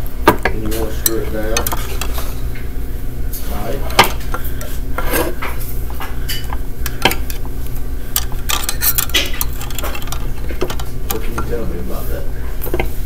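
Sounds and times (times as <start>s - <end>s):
low hum: 0.0s - 13.0s
wires clinking against metal box: 0.6s - 2.4s, 8.1s - 11.8s.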